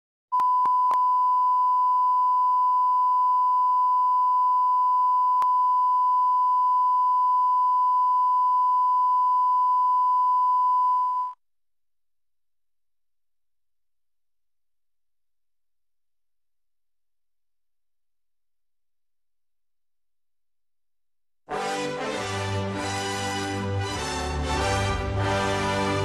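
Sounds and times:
steady test tone beep: 0.3 - 11.4.

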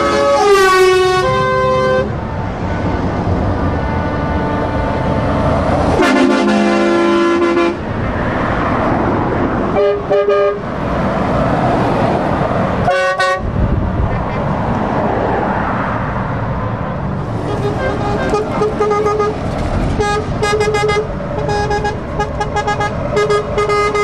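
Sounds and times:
truck horn blasts: 0.0 - 7.9, 9.7 - 10.7, 12.8 - 13.6, 17.3 - 24.0
trucks driving past: 0.0 - 24.0.

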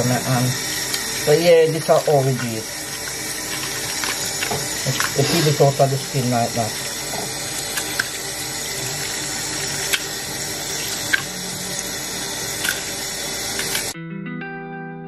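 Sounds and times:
tap water running into sink: 0.0 - 14.0
music with held notes: 14.0 - 15.0.

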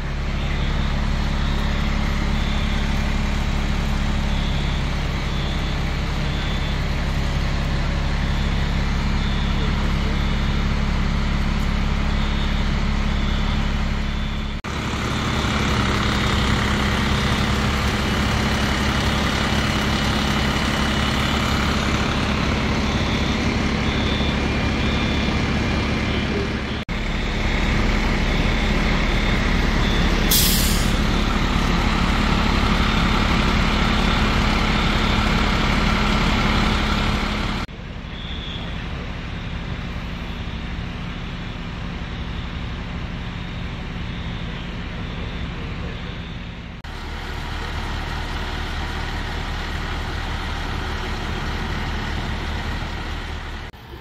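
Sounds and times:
diesel engine running: 0.0 - 54.0
faint high beep: 0.2 - 14.6, 15.9 - 31.8, 38.1 - 46.7
air brake hiss: 30.3 - 31.1.

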